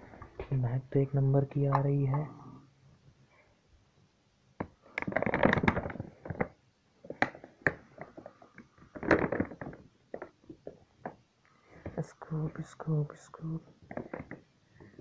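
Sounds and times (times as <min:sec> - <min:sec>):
plastic bag crinkling: 0:04.9 - 0:10.6.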